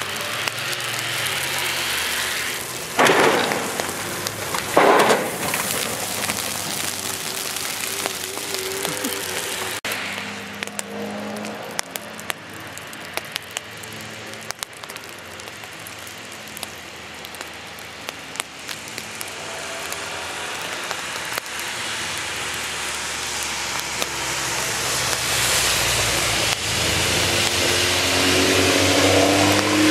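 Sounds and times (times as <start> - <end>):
race car engines: 0.0 - 29.9
rain hiss: 0.0 - 29.9
raindrop ticks: 3.0 - 25.3.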